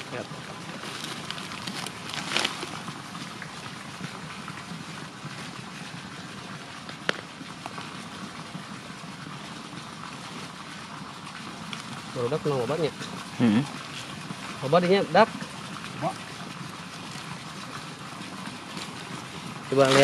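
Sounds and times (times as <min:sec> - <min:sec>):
dry leaves and twigs rustling: 0:00.7 - 0:03.0.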